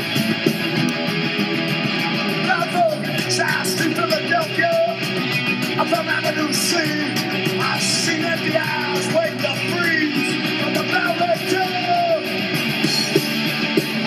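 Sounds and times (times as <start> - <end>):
punk rock music: 0.0 - 14.0
shouted vocals: 5.8 - 12.4.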